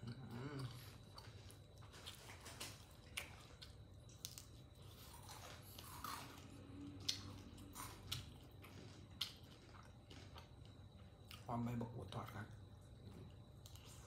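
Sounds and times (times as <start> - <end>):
wet chewing: 0.0 - 11.5
crispy food crunches: 0.0 - 11.8.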